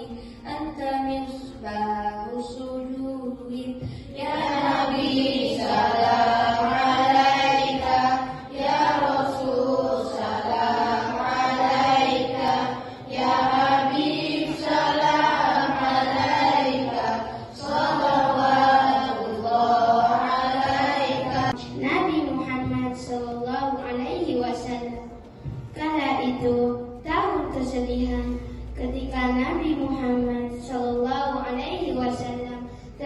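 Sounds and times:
children singing in unison: 4.2s - 21.6s.

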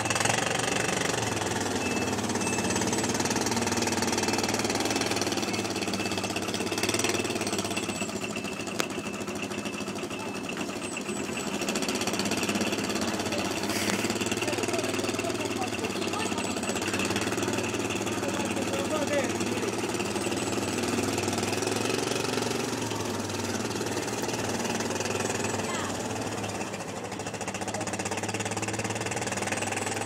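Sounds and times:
atv engines idling: 0.0s - 30.0s.

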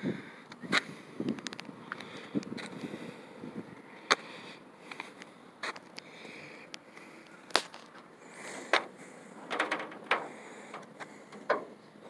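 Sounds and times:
faint outdoor hiss: 0.0s - 12.0s.

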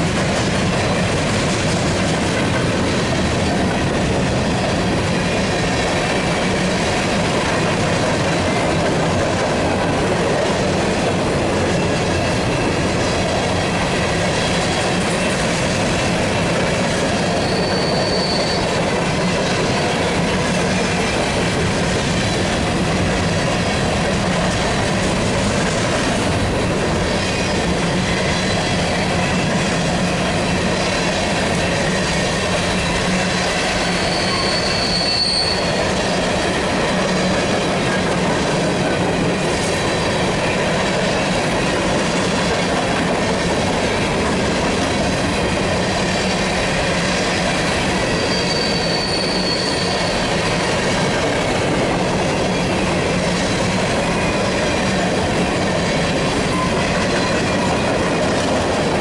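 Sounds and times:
train wheels rolling on rails: 0.0s - 59.0s
high-pitched wheel squeals: 17.3s - 18.8s, 33.8s - 36.0s, 48.1s - 50.4s.

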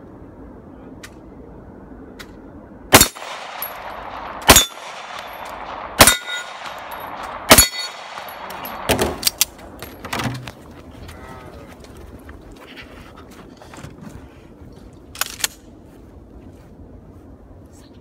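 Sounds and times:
pistol shots: 2.9s - 10.0s
steel target ringing: 3.0s - 10.0s.

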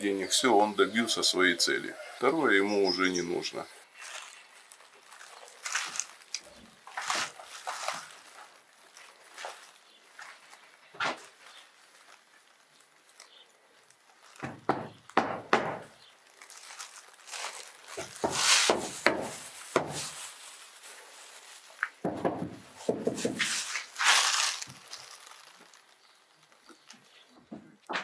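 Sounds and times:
rustling: 1.0s - 15.2s, 15.9s - 27.9s
knocks and scuffs: 10.2s - 11.4s, 17.9s - 20.2s, 21.8s - 24.8s.

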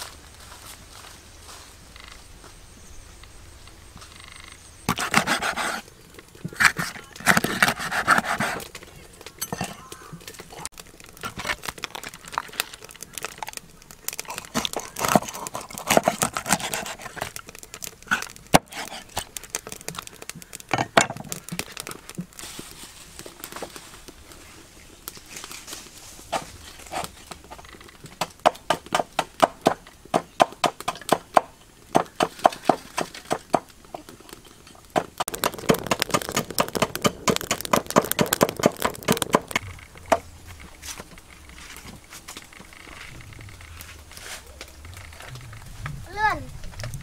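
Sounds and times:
hands rustling and knocking things: 34.8s - 42.5s.

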